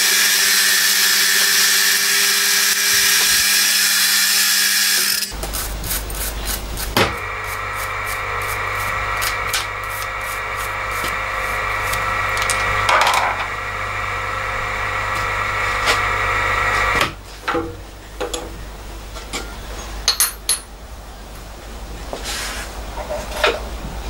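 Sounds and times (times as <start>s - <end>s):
milling machine whine: 0.0s - 5.4s, 7.0s - 17.2s.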